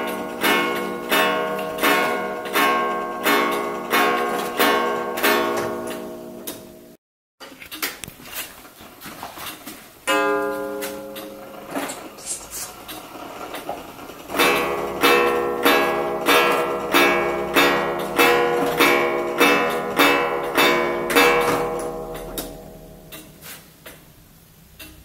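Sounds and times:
wall clock gong striking: 0.0s - 7.0s, 10.0s - 12.2s, 12.8s - 23.5s.

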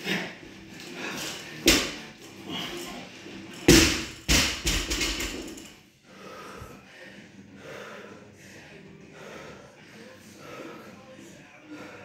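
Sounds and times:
barbell thudding on rubber floor: 3.7s - 5.6s.

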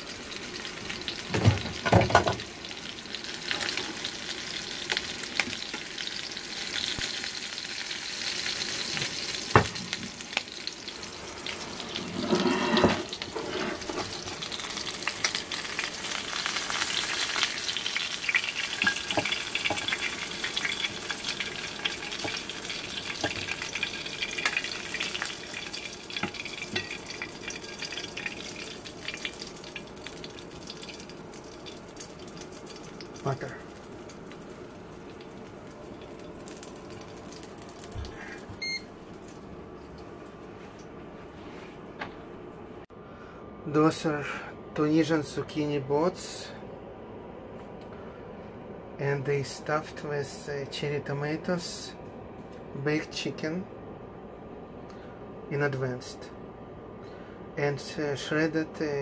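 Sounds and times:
butter sizzling in a frying pan: 0.0s - 12.0s, 13.0s - 38.0s.

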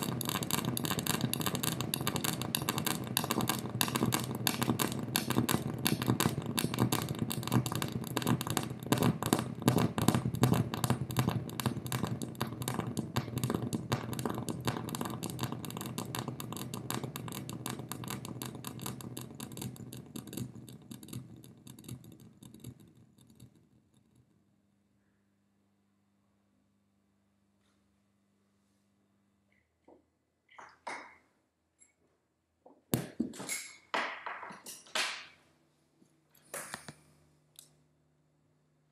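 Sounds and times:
electronic clicks and crackle: 0.0s - 24.4s.

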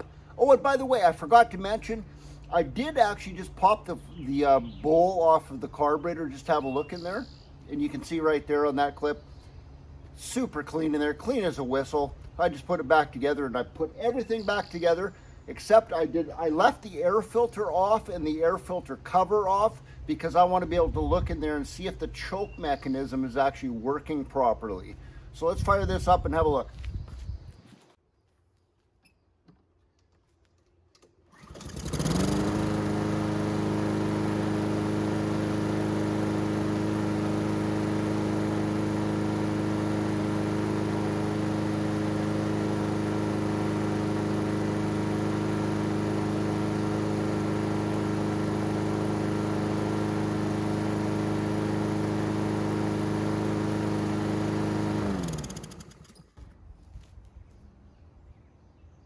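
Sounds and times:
lawn mower engine running: 0.0s - 21.8s, 31.0s - 56.6s
pull starter: 30.9s - 56.6s.

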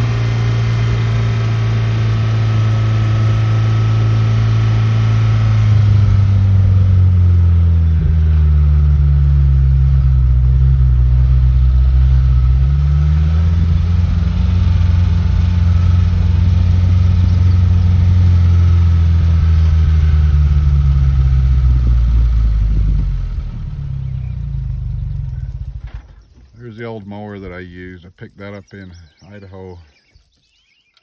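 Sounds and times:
car engine running: 0.0s - 27.6s.

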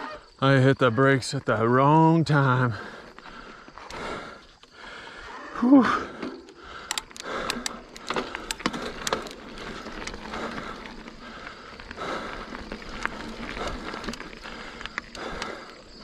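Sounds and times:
bike tyres on dirt: 0.0s - 16.0s
person breathing hard: 2.7s - 16.0s
bike clicks and rattles: 5.9s - 16.0s.

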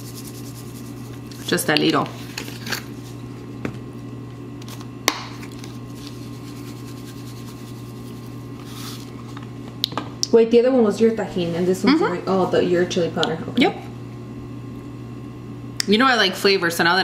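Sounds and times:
powder shaking: 0.0s - 1.6s, 5.5s - 9.1s.

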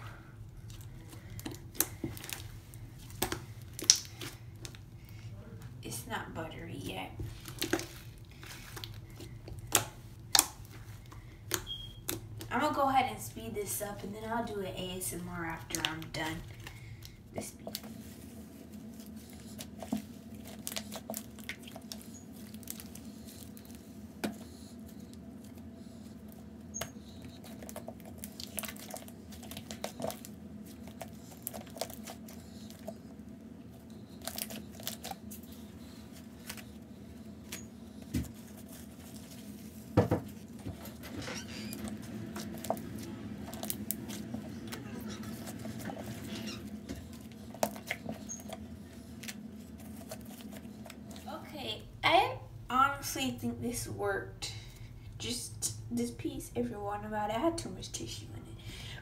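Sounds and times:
hands squishing sticky slime: 0.5s - 5.4s, 6.8s - 12.8s, 14.9s - 33.2s, 33.8s - 51.2s
slime snapping: 3.2s - 4.3s, 9.6s - 10.7s.

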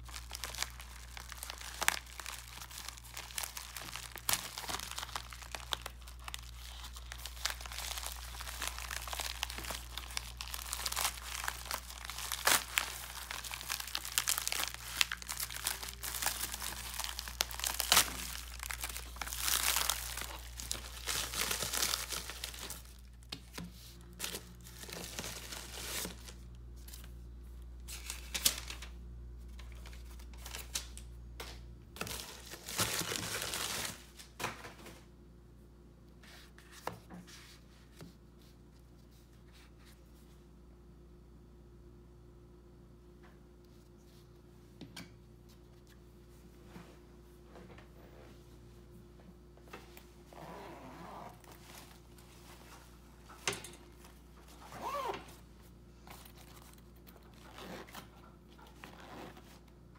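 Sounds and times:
envelope tearing: 0.0s - 23.0s
bubble mailer crinkling: 0.0s - 27.0s.

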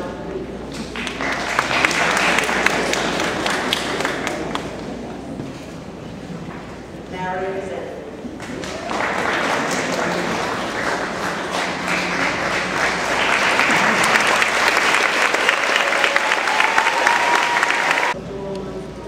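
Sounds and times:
audience applauding: 1.0s - 4.8s, 8.4s - 18.2s.

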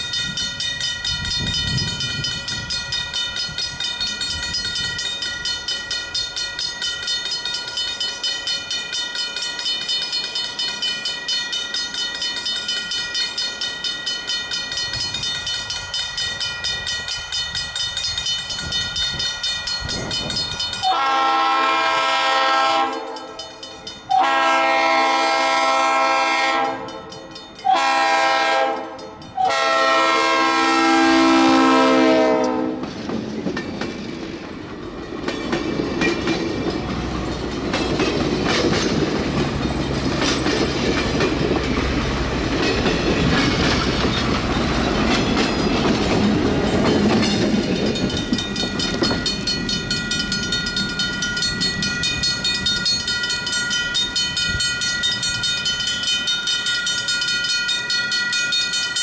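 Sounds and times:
train wheels clicking over rail joints: 0.0s - 24.8s, 32.2s - 59.0s
locomotive horn blasts: 20.8s - 23.4s, 24.1s - 27.0s, 27.6s - 32.8s.

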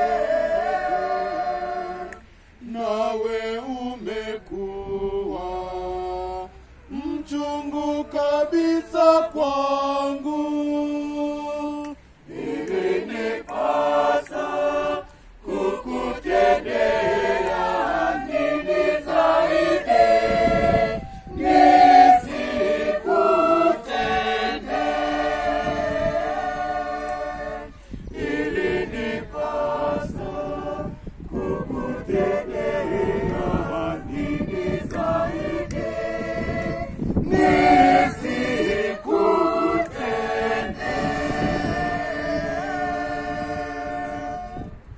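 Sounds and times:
choir singing: 0.0s - 44.9s.

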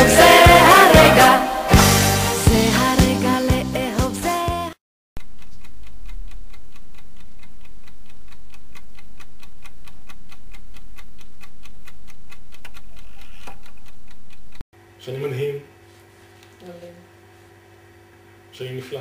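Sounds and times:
rapid even ticking: 5.2s - 14.6s.

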